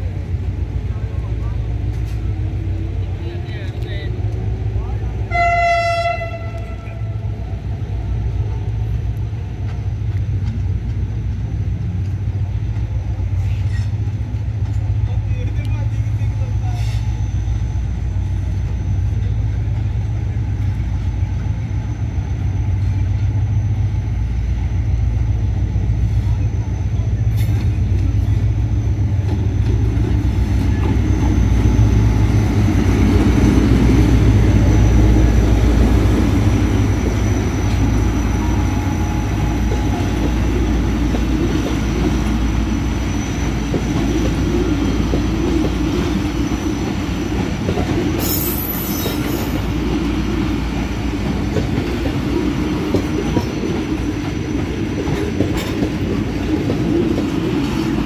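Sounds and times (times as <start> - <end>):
locomotive engine rumbling: 0.0 - 58.0
train wheels clattering on rails: 27.3 - 58.0.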